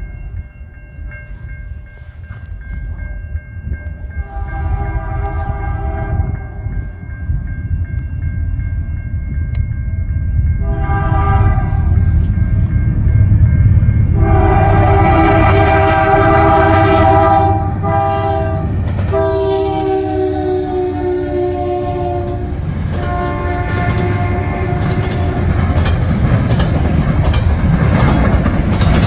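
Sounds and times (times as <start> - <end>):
crossing bell ringing: 0.0 - 29.0
train rumbling: 0.0 - 29.0
locomotive air horn: 4.2 - 6.8, 10.6 - 12.1, 14.2 - 25.5.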